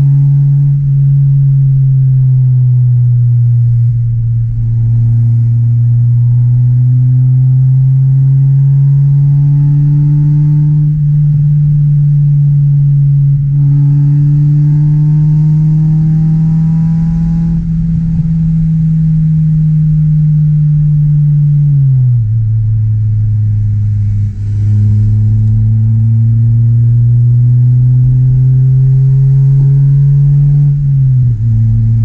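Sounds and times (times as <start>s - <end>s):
car engine and exhaust running: 0.0s - 32.0s.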